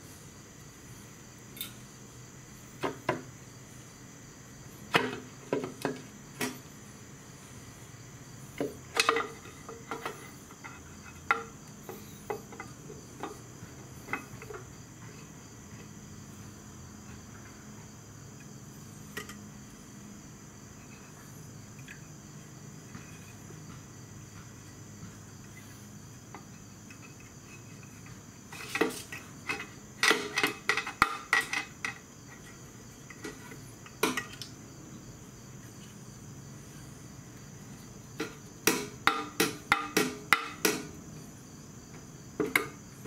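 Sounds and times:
tools knocking on metal: 0:38.2 - 0:41.0.

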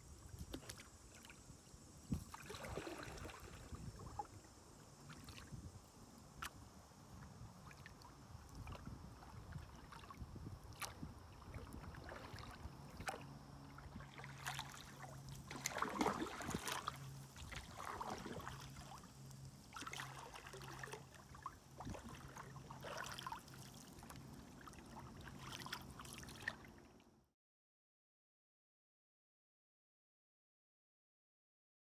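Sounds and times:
faint low hum: 0:00.0 - 0:27.2
paddle dipping through water: 0:00.2 - 0:05.7, 0:06.3 - 0:27.0
water splashes and drips: 0:02.1 - 0:04.3, 0:07.6 - 0:27.0.

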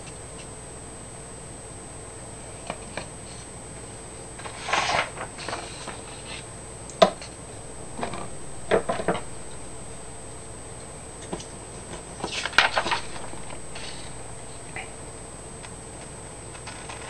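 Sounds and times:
paper rustling: 0:04.4 - 0:06.4, 0:12.2 - 0:14.7.

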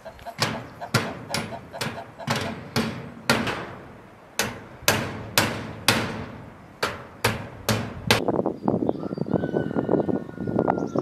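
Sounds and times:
hammer striking sheet-metal roof: 0:00.4 - 0:08.3.

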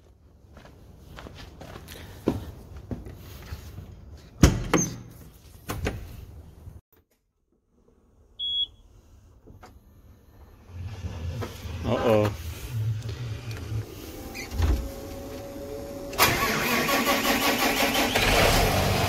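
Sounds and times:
footsteps on metal steps: 0:00.5 - 0:06.1.

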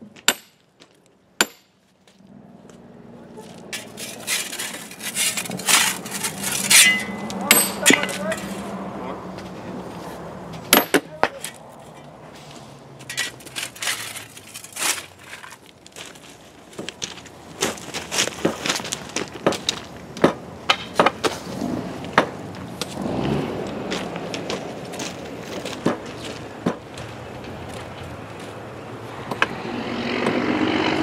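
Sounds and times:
sledgehammers knocking and cracking: 0:00.1 - 0:01.8, 0:03.7 - 0:08.7, 0:10.7 - 0:11.6, 0:13.0 - 0:15.7, 0:17.6 - 0:22.9.

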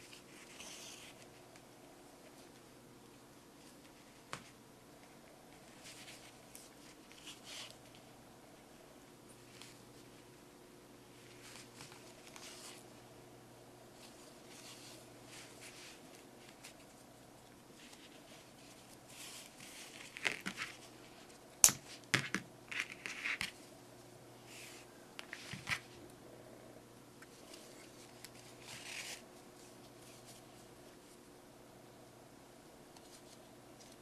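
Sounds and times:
faint steady hum: 0:00.0 - 0:34.0
hands rustling yarn: 0:03.5 - 0:10.4, 0:11.1 - 0:13.1, 0:13.8 - 0:22.1, 0:27.2 - 0:31.3.

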